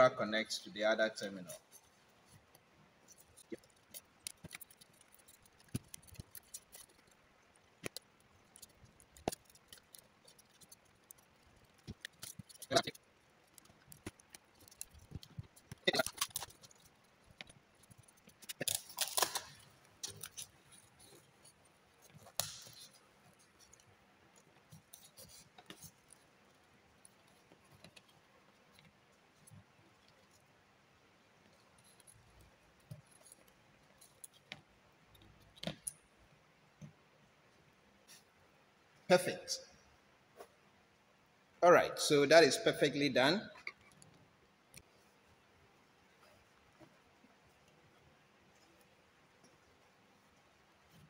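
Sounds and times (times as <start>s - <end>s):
hands working electrical wires: 1.4s - 36.0s.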